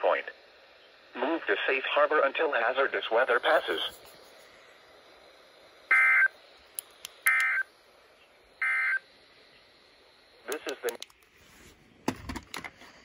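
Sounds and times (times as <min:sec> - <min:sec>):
short buzzy data bursts: 0:05.8 - 0:06.4, 0:07.2 - 0:07.7.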